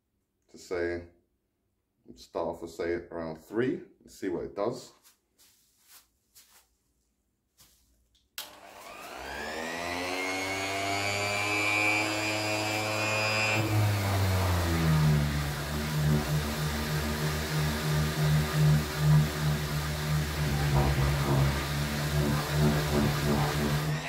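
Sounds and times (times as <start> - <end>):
orbital sander motor whining: 8.4 - 24.0
sander on painted door: 8.5 - 24.0.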